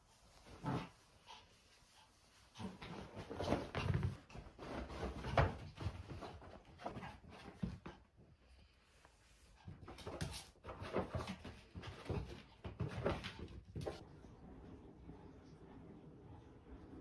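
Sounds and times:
dog scuffling and knocking on floor: 2.6s - 8.0s, 9.6s - 14.0s.

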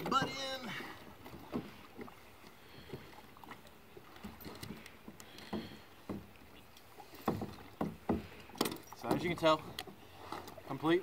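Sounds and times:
knocks against kayak hull: 7.1s - 9.3s.

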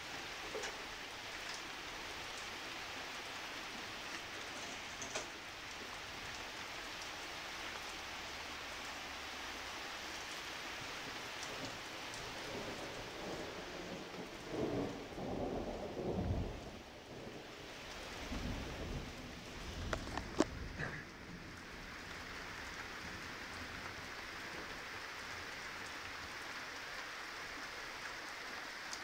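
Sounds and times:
heavy rain: 0.0s - 29.0s
raindrops ticking: 0.2s - 2.6s, 3.8s - 29.0s
thunder rumbling: 12.4s - 21.5s.

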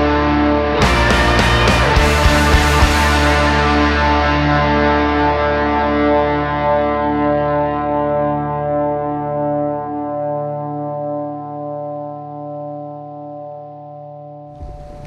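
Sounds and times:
electric guitar chords: 0.0s - 15.0s
sudden noisy sound: 14.6s - 15.0s.

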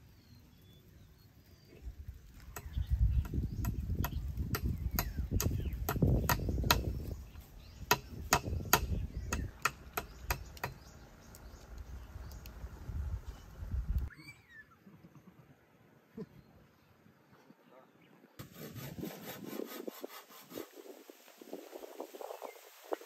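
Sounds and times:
sharp knocks at charcoal stove: 2.6s - 6.9s, 7.9s - 10.8s.

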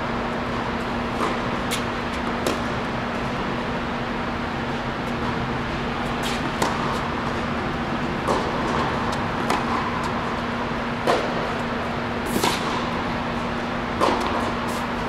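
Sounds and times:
steady background hum: 0.0s - 15.0s
tennis ball racket hits: 1.1s - 3.4s, 6.0s - 15.0s.

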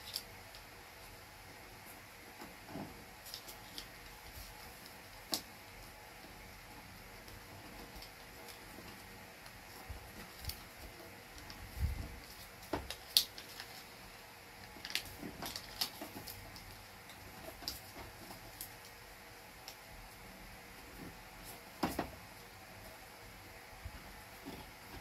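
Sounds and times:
paper rustling and tapping: 7.2s - 13.9s, 14.7s - 19.0s.

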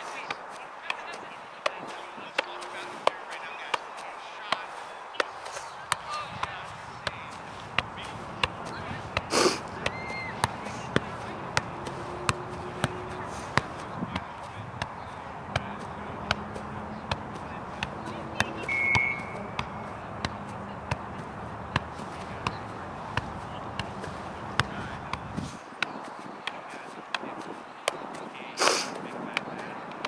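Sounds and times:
foot tapping soccer ball: 0.2s - 28.2s.

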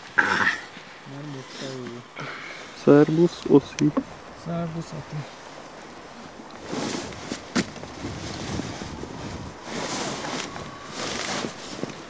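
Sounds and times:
wind gusting over microphone: 3.1s - 12.0s.

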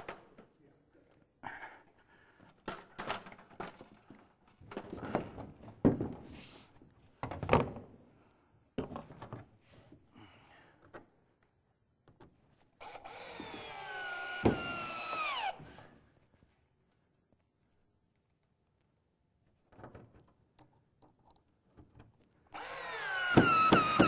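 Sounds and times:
cordless drill driving screw: 12.8s - 15.6s, 22.5s - 24.0s.

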